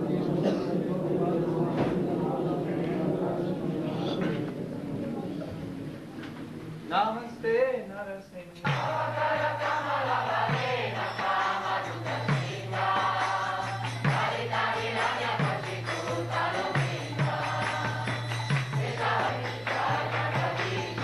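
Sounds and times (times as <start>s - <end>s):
drum strokes: 8.6s - 21.0s
group singing a chant: 8.6s - 21.0s
jingling percussion: 8.6s - 21.0s.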